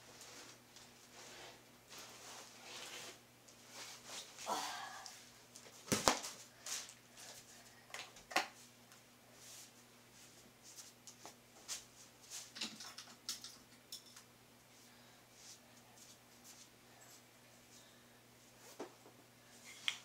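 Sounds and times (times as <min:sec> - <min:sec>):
faint steady hum: 0:00.0 - 0:20.0
small objects clicking and tapping: 0:12.6 - 0:14.3.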